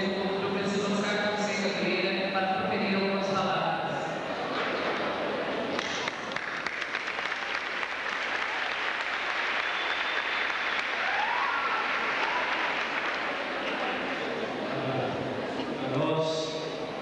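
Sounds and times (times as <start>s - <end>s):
audience applauding: 5.6s - 14.6s.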